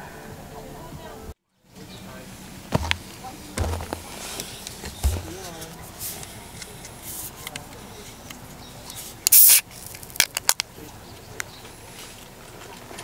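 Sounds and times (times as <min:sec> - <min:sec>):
short spray hiss: 0:09.3 - 0:09.7.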